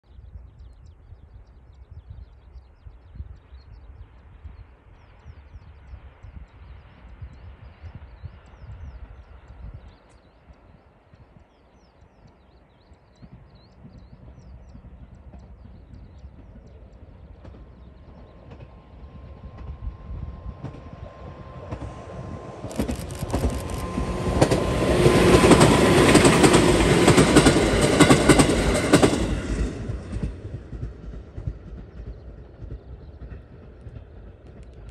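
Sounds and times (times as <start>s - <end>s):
electric train passing: 13.3s - 34.9s
wheels clattering on rails: 20.5s - 34.9s.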